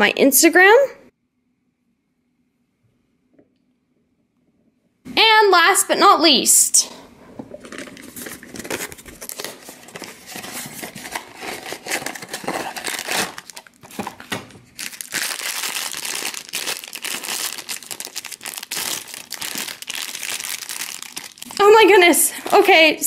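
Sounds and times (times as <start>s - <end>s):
box rustling: 7.4s - 22.7s
foil bag crinkling: 7.6s - 23.0s.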